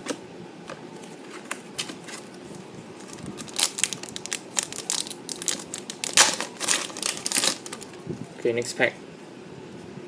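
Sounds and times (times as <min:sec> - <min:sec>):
foil wrapper crinkling: 0:01.3 - 0:08.0.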